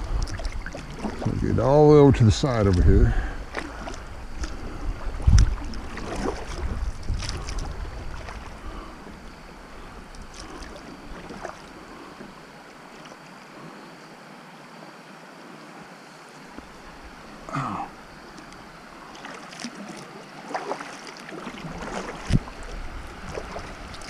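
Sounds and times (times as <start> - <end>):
wind buffeting microphone: 0.0 - 12.0, 21.6 - 24.0
paddle splashing in water: 0.0 - 13.7, 16.4 - 24.0
rushing water: 0.0 - 24.0.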